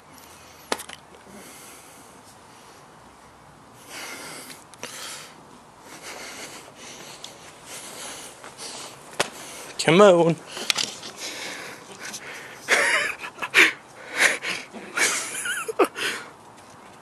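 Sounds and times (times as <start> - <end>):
person sniffing and breathing: 3.8 - 9.8, 10.4 - 12.7, 13.5 - 15.2.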